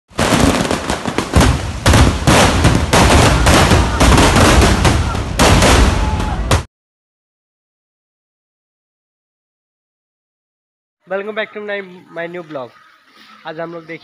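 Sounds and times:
fireworks crackling: 0.1s - 6.2s
firecracker bangs: 0.1s - 6.7s.

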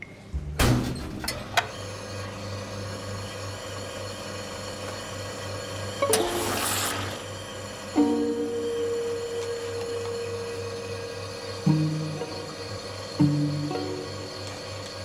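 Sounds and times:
vending machine humming: 0.0s - 15.0s
hissing gush of drink dispensing: 6.1s - 7.3s.

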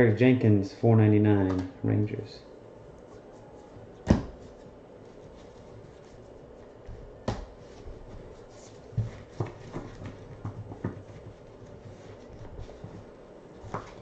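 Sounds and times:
cards tapping and rustling: 6.8s - 14.0s.

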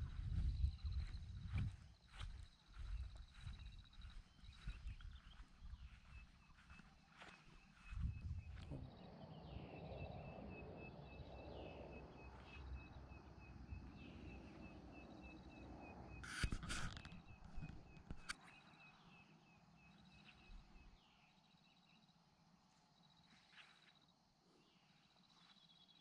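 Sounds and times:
low rumble: 0.0s - 1.6s, 8.0s - 15.0s
faint high chirp: 0.1s - 22.1s.

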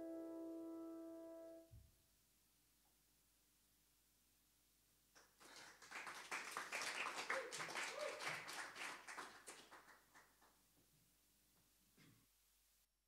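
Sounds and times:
small audience clapping: 5.1s - 10.6s.

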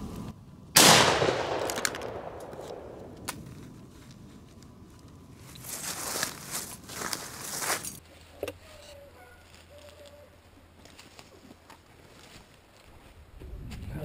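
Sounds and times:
shotgun shot echoing: 0.8s - 3.2s
rustling: 2.4s - 13.2s.

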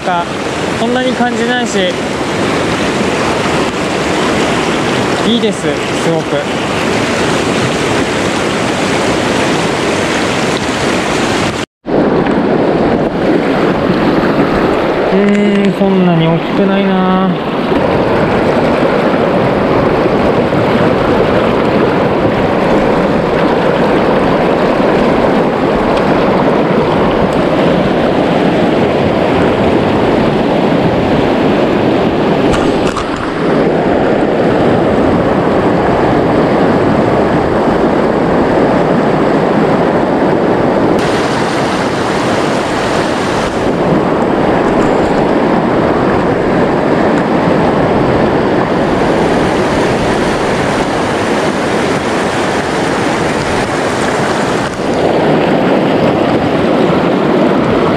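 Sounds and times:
river rapids rushing over rocks: 0.0s - 11.6s, 41.0s - 57.1s.

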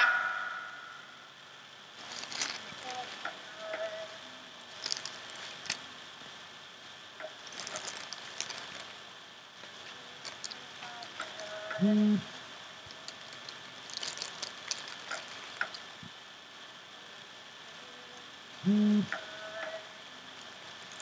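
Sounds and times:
plastic bag crinkling: 2.0s - 5.9s, 7.2s - 11.7s, 12.3s - 16.1s, 20.3s - 21.0s.

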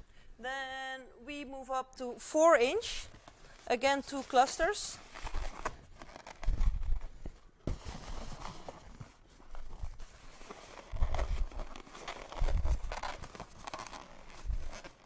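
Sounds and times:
balloons rubbing and knocking: 3.1s - 15.0s.

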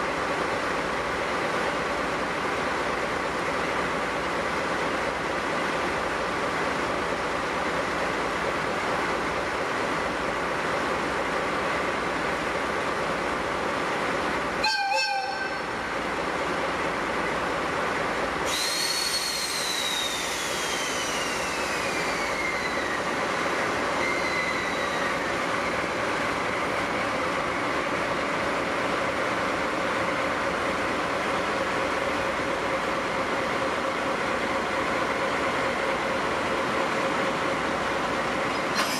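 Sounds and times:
rush of steam with falling whistle: 14.6s - 15.7s, 18.5s - 23.3s, 23.9s - 25.9s
warbling steam whistle: 14.6s - 15.7s, 18.5s - 23.1s, 24.0s - 25.3s
steam locomotive hissing: 18.4s - 38.9s.

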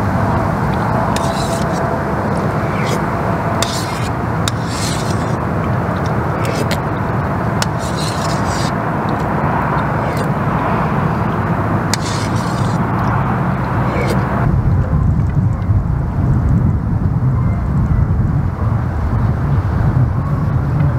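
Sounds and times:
loud rushing background noise: 0.0s - 17.0s
metal spoon scraping pot: 1.1s - 3.0s, 3.6s - 5.4s, 6.0s - 6.9s, 7.6s - 10.4s, 11.9s - 13.1s, 13.8s - 14.3s.

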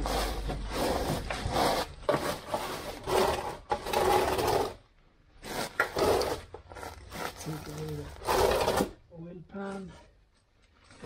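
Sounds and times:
scraping and rustling: 0.0s - 4.8s.

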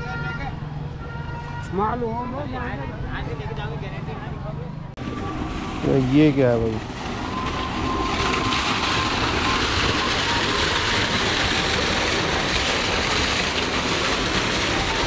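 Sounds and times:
water gushing into pit: 5.0s - 15.0s.

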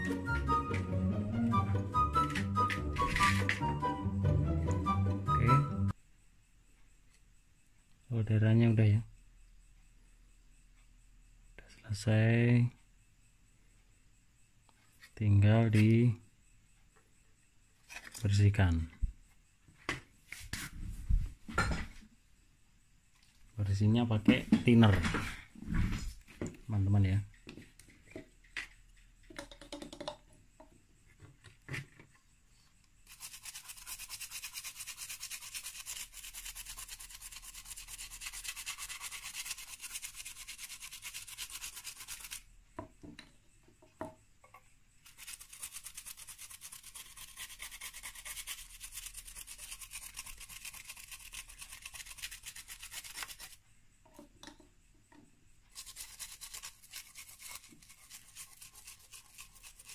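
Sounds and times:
brush clicking in bottle: 29.3s - 30.2s
brush scrubbing circuit board: 33.0s - 42.5s, 45.0s - 53.6s, 55.7s - 59.9s.

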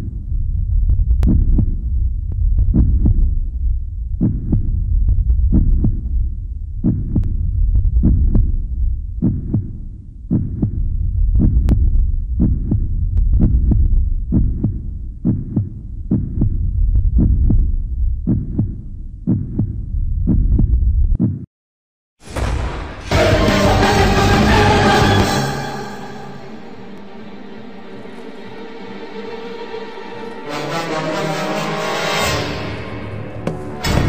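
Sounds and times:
deep rumble: 0.0s - 21.2s, 22.2s - 25.3s
heartbeat thumps: 0.0s - 21.5s.

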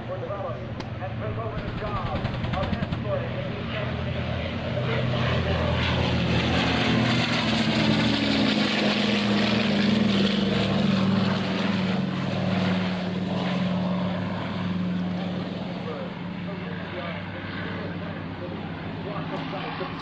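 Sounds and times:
propeller aircraft engines droning: 0.0s - 20.0s.

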